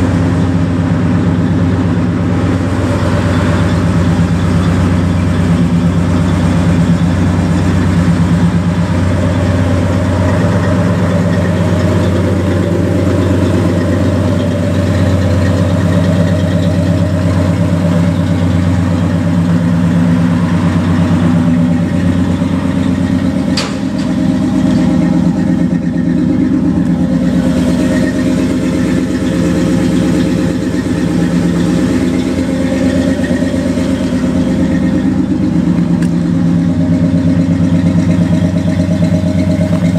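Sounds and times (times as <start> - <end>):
pickup truck engine idling: 0.0 - 39.9.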